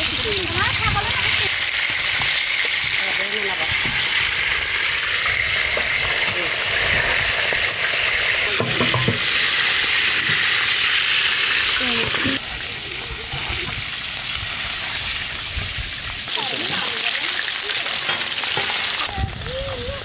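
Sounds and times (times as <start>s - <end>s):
fish sizzling in oil: 0.0s - 20.0s
metal spatulas scraping pan: 18.0s - 19.0s.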